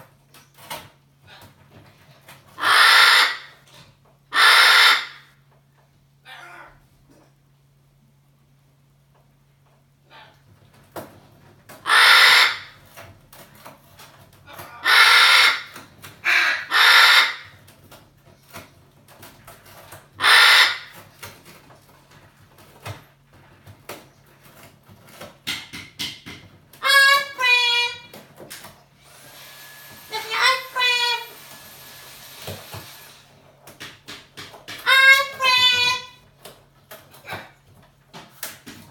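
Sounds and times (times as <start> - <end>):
parrot screaming: 2.6 - 3.6, 4.3 - 5.3, 11.8 - 12.8, 14.5 - 17.6, 20.2 - 21.0, 26.8 - 28.1, 30.1 - 31.4, 34.8 - 36.2.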